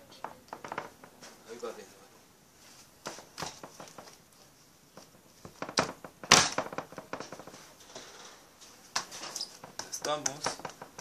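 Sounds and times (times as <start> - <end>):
hands slapping dough on metal tray: 9.0 - 11.0.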